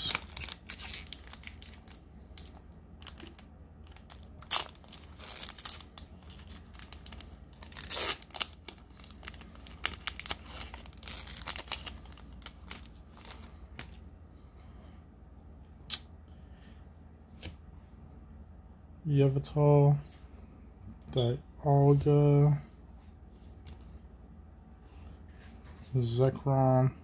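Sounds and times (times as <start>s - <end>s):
foil wrapper ripping: 0.0s - 13.5s
foil wrapper crinkling: 0.0s - 13.9s.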